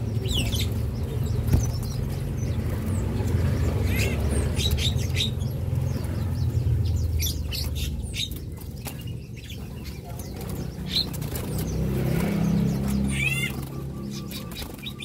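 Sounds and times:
bird chirps: 0.0 - 15.0
birds flapping wings: 7.4 - 15.0.

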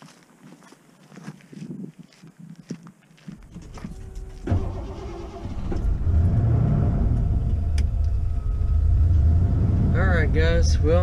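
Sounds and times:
van engine low rumble: 3.4 - 11.0.

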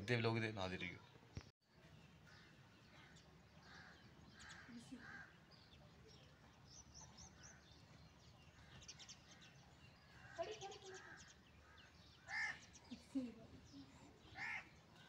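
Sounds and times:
faint bird calls: 1.0 - 15.0.

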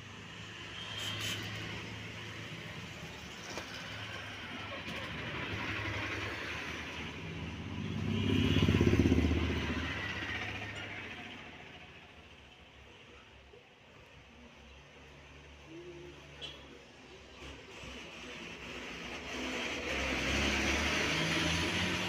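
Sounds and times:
passing vehicle engine hum: 1.0 - 12.4, 15.0 - 22.0.

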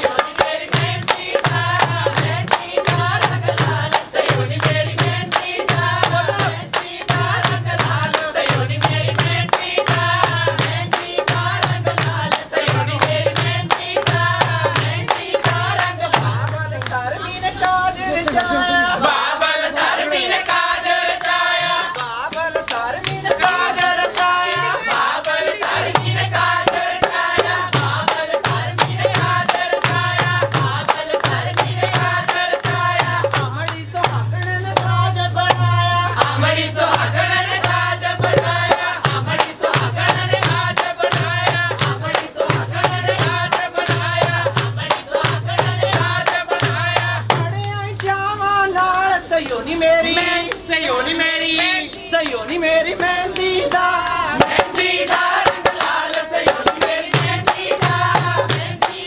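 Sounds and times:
hand drum beat: 0.0 - 16.6, 22.7 - 47.8, 54.3 - 59.0
voices singing folk song: 0.0 - 59.0
hands clapping: 17.6 - 18.6.

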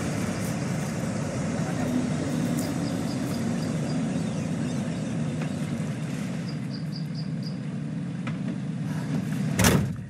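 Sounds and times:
bird chirping: 2.4 - 7.7.

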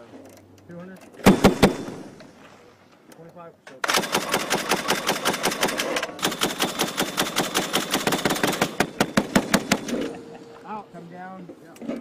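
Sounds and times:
machine-gun fire: 1.2 - 2.2, 3.8 - 10.2.

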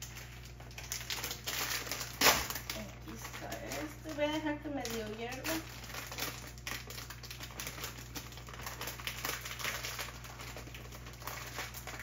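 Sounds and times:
saucepan water crackling and ticking: 0.0 - 12.0.

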